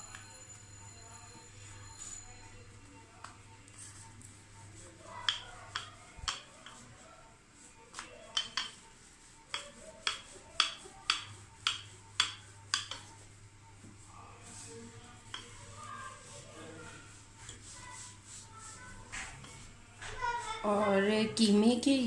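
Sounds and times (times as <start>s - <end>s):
rolling pin clacking on counter: 5.2s - 6.8s, 7.9s - 8.8s, 9.5s - 13.2s.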